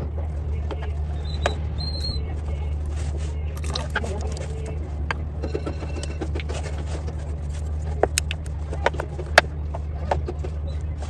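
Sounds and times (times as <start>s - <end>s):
steady low hum: 0.0s - 11.0s
spoon stirring thick batter: 2.7s - 4.8s.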